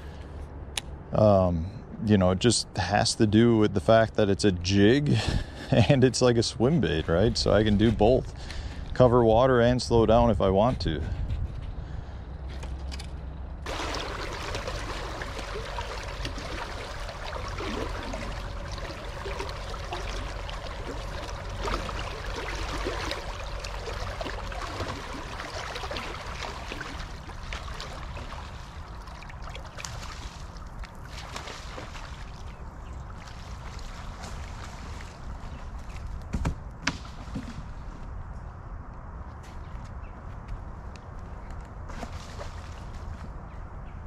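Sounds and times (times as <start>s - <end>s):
faint steady whine: 13.6s - 28.4s
river water trickling: 13.6s - 36.2s, 41.9s - 43.4s.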